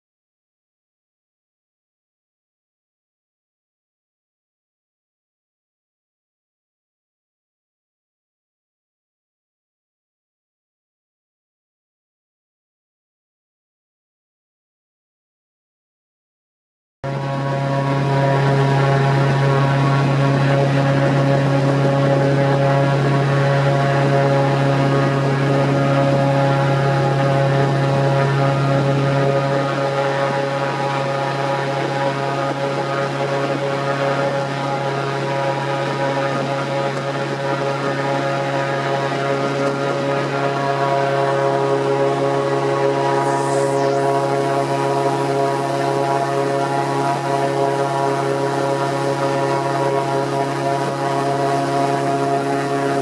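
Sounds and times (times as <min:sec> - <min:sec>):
airboat engine and propeller drone: 0:17.0 - 0:53.0.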